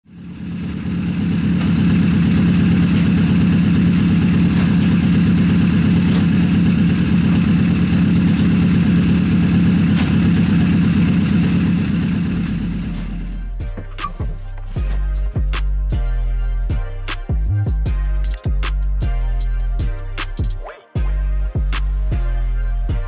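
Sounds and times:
motorcycle engine running steadily: 0.0 - 15.6.

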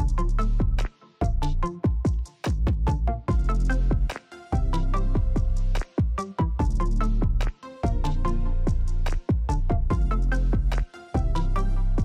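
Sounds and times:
electronic music with heavy bass: 0.0 - 12.0.

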